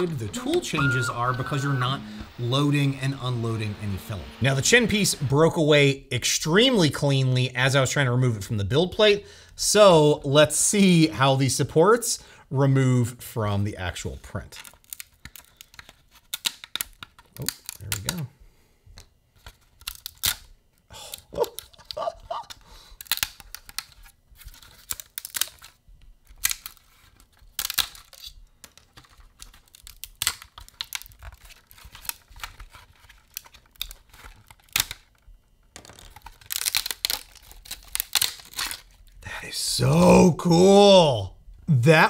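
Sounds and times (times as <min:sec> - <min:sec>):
plastic supports cracking and snapping: 0:21.1 - 0:39.1.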